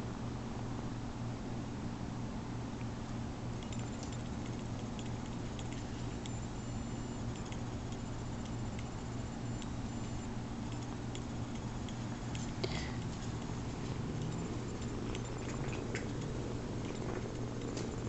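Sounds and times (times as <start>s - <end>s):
steady low hum: 0.0s - 18.0s
kitten claws scratching fabric: 10.7s - 18.0s.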